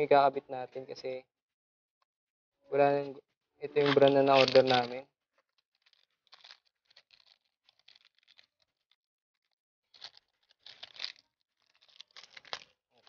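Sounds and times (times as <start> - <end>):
plastic and cardboard crinkling: 3.7 - 13.0.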